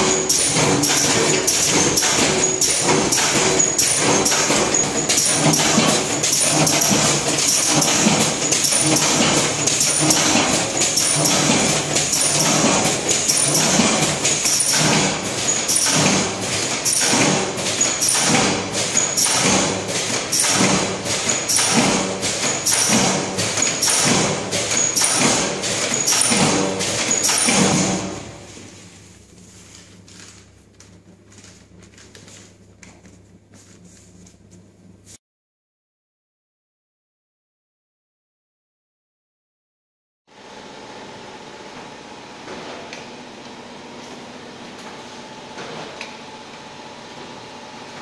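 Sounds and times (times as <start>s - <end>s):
packaging machine knocking: 0.0s - 28.4s.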